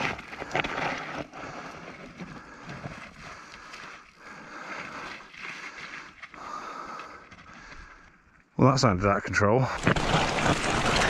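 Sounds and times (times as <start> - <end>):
bike tyres skidding through dirt: 0.0 - 6.8, 9.8 - 11.0
bike rattling: 9.8 - 11.0.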